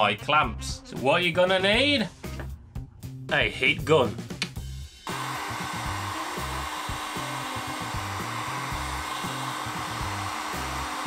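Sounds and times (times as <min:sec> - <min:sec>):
heat gun blowing hot air: 0:05.0 - 0:11.0.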